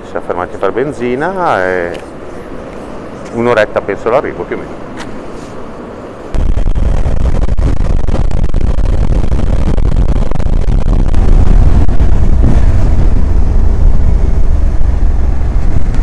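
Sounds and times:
wind rumble on microphone: 0:06.3 - 0:16.0
motorcycle riding noise: 0:10.5 - 0:16.0.

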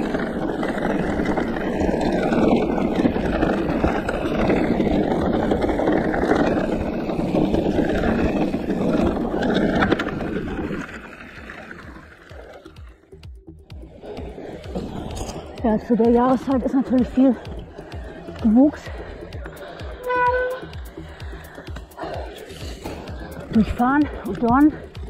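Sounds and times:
bike tyres rolling on gravel: 0:00.0 - 0:25.0.

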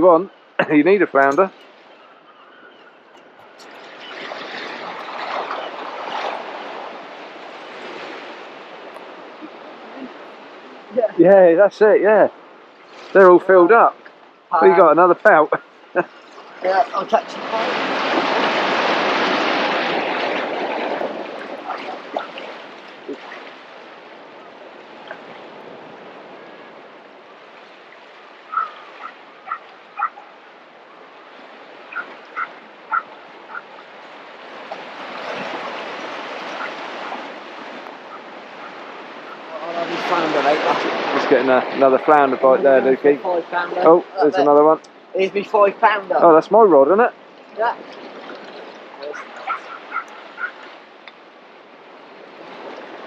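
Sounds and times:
waves splashing over rocks: 0:00.0 - 0:02.3, 0:03.0 - 0:53.0
bird call: 0:01.5 - 0:06.8, 0:28.4 - 0:30.4, 0:31.9 - 0:33.8.

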